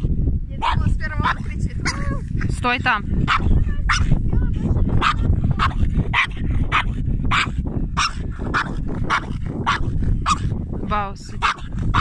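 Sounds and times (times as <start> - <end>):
wind rumbling on microphone: 0.0 - 12.0
dog barking: 0.6 - 2.1, 3.2 - 4.1, 5.0 - 10.5, 11.4 - 12.0.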